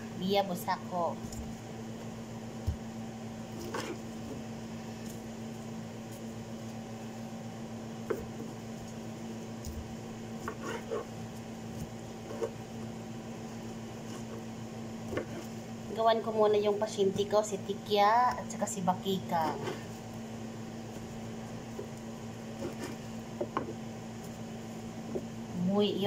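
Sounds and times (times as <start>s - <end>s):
electrical hum: 0.0s - 26.0s
knife tapping and scraping board: 3.6s - 4.0s, 10.4s - 11.1s, 12.2s - 12.9s, 15.1s - 15.5s, 19.4s - 19.9s, 22.6s - 23.8s.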